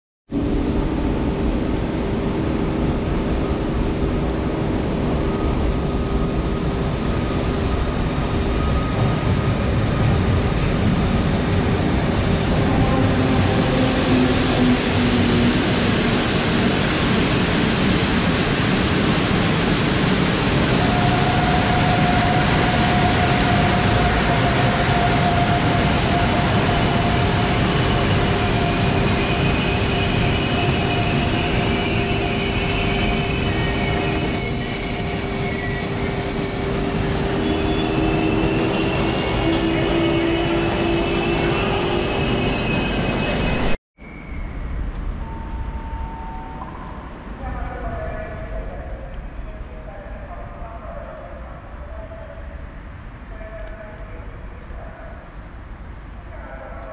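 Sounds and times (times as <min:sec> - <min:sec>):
train coaches rumbling past: 0:00.4 - 0:43.8
metallic brake squealing: 0:31.5 - 0:44.4.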